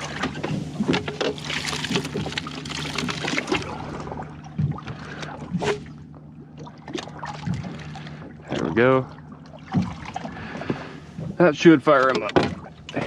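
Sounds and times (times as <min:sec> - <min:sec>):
steady low hum: 0:00.0 - 0:13.0
water pouring and trickling: 0:01.3 - 0:05.0
short sharp splashes: 0:06.6 - 0:11.0.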